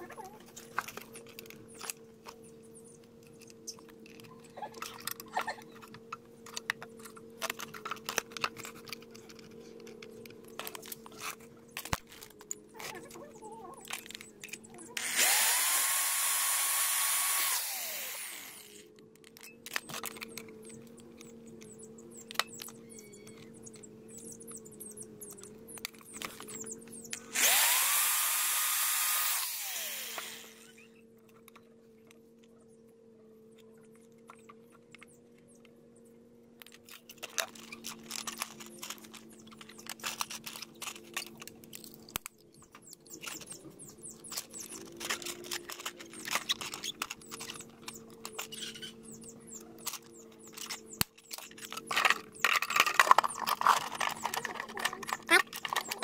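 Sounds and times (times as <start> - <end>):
power drill boring plastic pipe: 15.0 - 18.8, 27.2 - 30.8
scratchy handling noise: 36.7 - 56.0.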